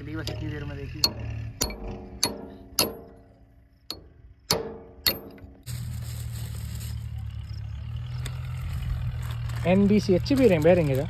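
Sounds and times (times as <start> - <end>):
engine idling: 0.0 - 11.0
hammer striking steel: 0.2 - 5.5.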